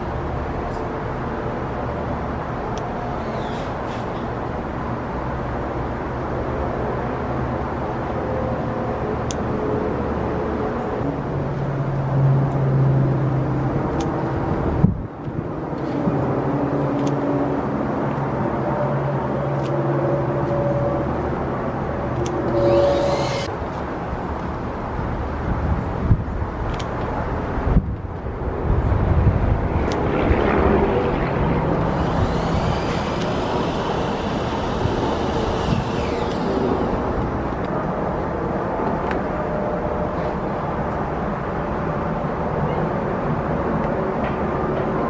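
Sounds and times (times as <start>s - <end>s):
low engine rumble: 27.3s - 41.4s.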